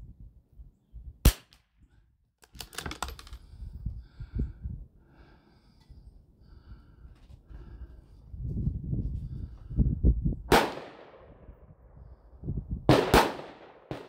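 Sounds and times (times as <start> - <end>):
rifle bolt metallic clicks: 2.4 - 3.4
rifle shot crack: 10.5 - 11.4, 12.9 - 14.0.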